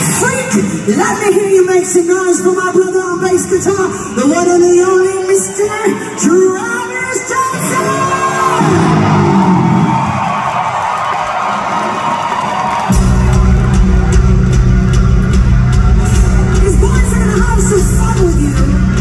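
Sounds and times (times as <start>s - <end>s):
live metal band playing: 12.9s - 19.0s.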